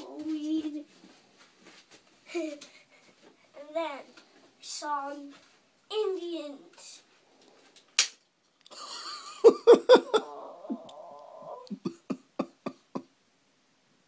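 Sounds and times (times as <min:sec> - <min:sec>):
child making vocal sound effects: 0:00.0 - 0:00.9.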